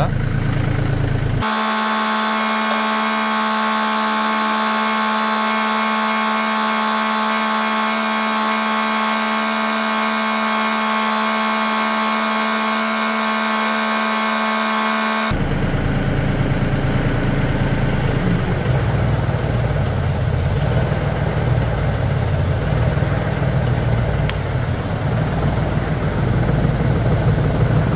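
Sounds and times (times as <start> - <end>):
tractor diesel engine drone: 0.0 - 27.9.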